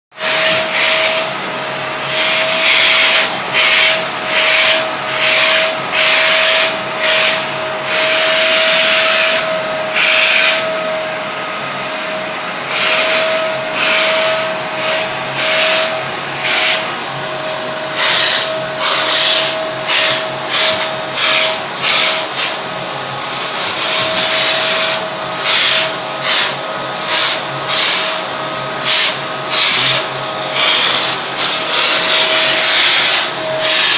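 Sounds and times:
vacuum cleaner running: 0.1 - 33.9.

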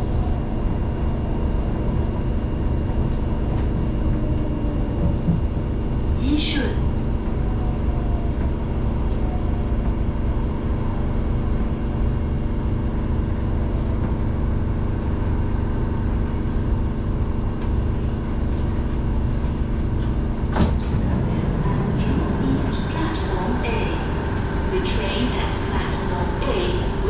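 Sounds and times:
train wheels rumbling on rails: 0.0 - 27.0
high-pitched brake squeal: 15.0 - 15.6, 16.4 - 18.2, 18.8 - 19.6
even hum: 19.5 - 27.0.

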